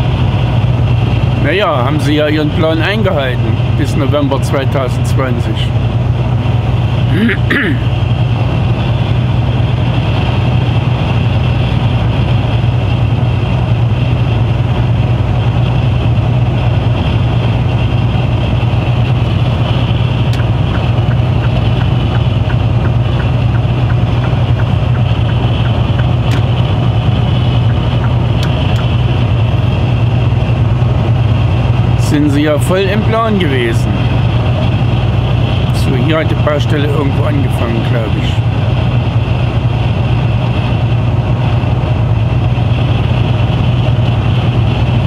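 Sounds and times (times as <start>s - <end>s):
truck engine drone: 0.0s - 45.0s
tyre and road noise: 0.0s - 45.0s
sharp clicks: 20.3s - 26.5s.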